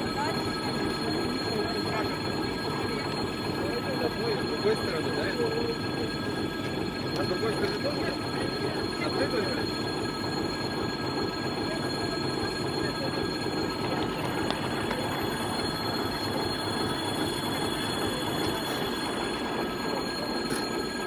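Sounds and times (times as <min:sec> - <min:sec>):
diesel locomotive rolling: 0:00.0 - 0:21.0
steady high tones: 0:00.0 - 0:21.0.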